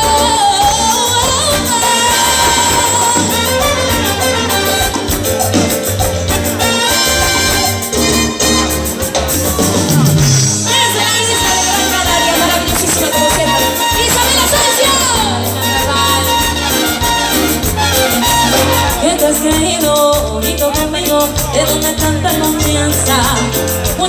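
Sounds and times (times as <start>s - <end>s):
live latin dance band: 0.0s - 24.0s.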